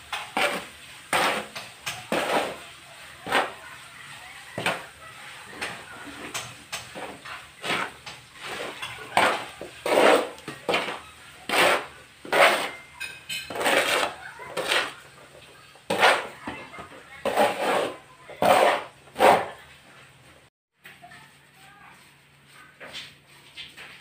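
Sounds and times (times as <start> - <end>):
trowel scraping cement on concrete: 0.1 - 3.7, 5.6 - 15.2, 15.8 - 19.7.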